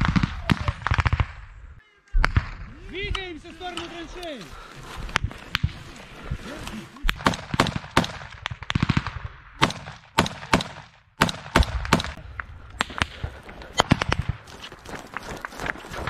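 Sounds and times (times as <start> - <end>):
rifle shots: 0.0 - 1.5, 7.1 - 12.2.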